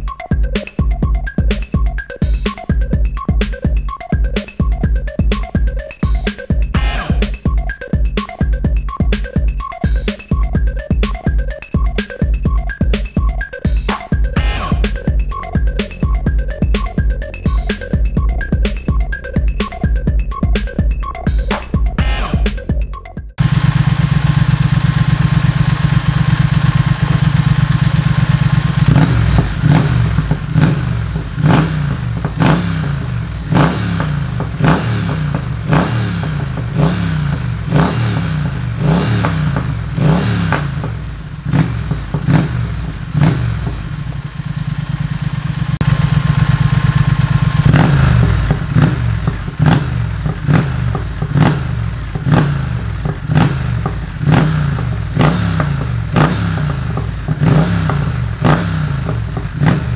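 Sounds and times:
motorcycle engine revving: 23.3 - 59.9.

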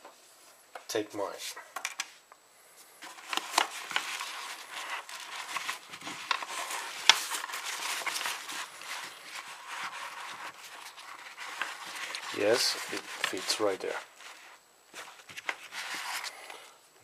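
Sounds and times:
fabric rustling: 3.0 - 16.4.

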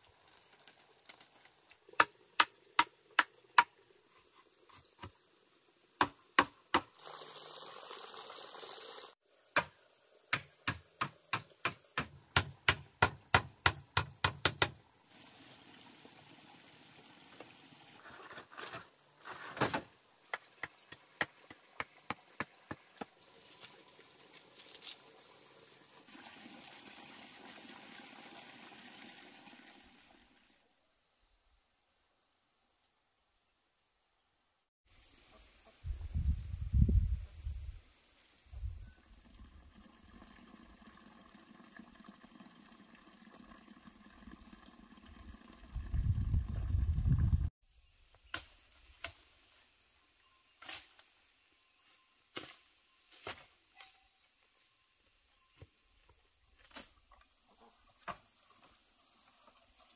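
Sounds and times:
hand tools knocking bamboo: 10.3 - 14.8
steady hiss: 34.9 - 39.2.

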